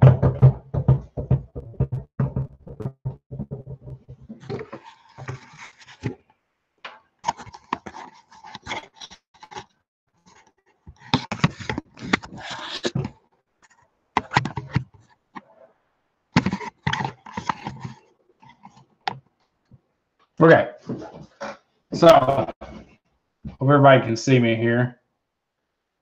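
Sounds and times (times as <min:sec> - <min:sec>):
webcam handling bumps and scrapes: 0:00.1 - 0:06.2, 0:07.2 - 0:15.5, 0:16.4 - 0:19.3.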